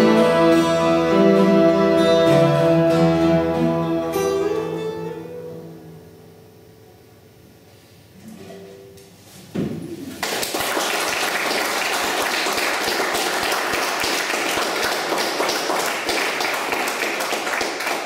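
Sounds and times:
audience applauding: 0:10.2 - 0:18.0.

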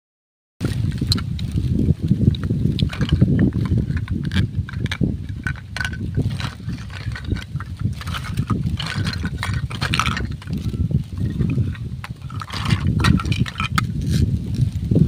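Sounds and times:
steady low rumble: 0:00.6 - 0:15.0
plastic toy pieces clattering: 0:00.9 - 0:01.6, 0:02.2 - 0:14.2.

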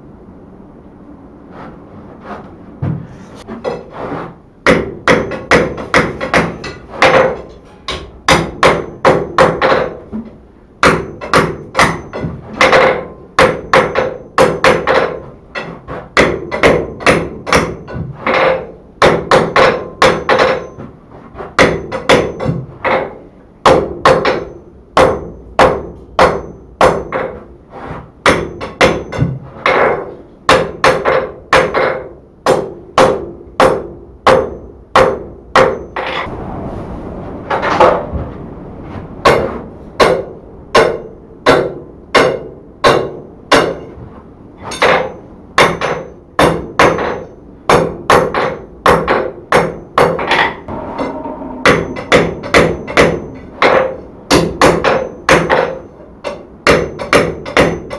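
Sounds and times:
hammer striking steel on anvil: 0:04.6 - 0:10.0, 0:10.8 - 0:20.8, 0:28.2 - 0:36.3, 0:39.2 - 0:43.9, 0:44.6 - 0:57.9.

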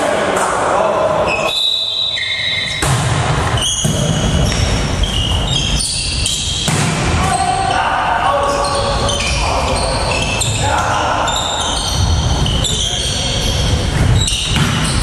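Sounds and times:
shoes squeaking on floor: 0:01.3 - 0:06.7, 0:07.3 - 0:15.0
volleyball being struck: 0:02.7 - 0:04.7, 0:06.5 - 0:07.4.

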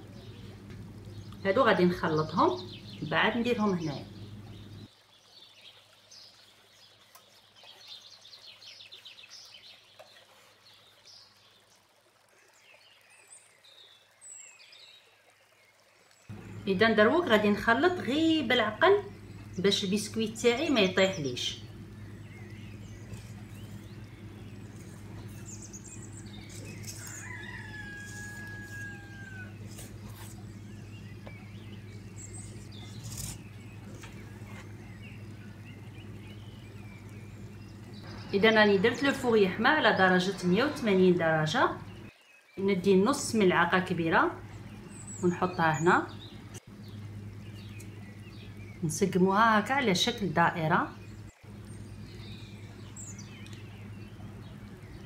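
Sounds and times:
steady low hum: 0:00.0 - 0:04.9, 0:16.3 - 0:55.0
birds chirping: 0:00.0 - 0:55.0
whisk scratching metal tray: 0:23.1 - 0:30.6.

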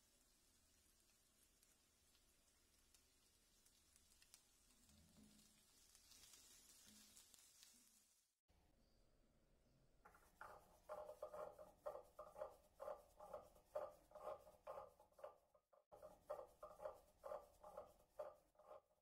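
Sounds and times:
wooden churner scraping ceramic cup: 0:10.1 - 0:19.0.

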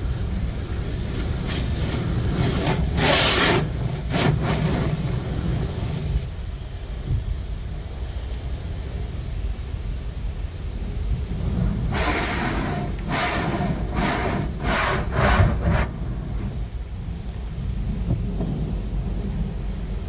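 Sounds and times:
low rumble inside car: 0:00.0 - 0:20.0.

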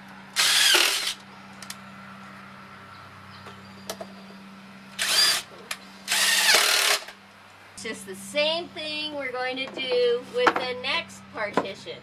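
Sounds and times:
low steady hum: 0:00.0 - 0:12.0
cordless drill driving screw: 0:00.4 - 0:01.2, 0:05.0 - 0:05.4, 0:06.1 - 0:07.1.

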